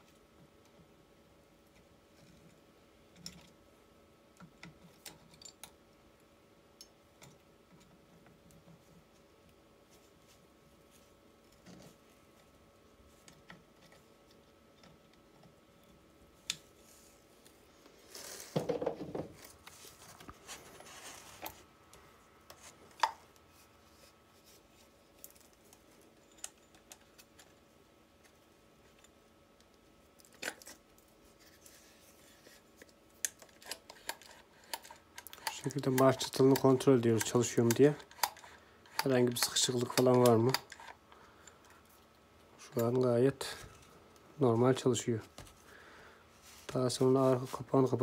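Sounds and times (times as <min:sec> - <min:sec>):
scraping rustle: 0:19.2 - 0:21.7.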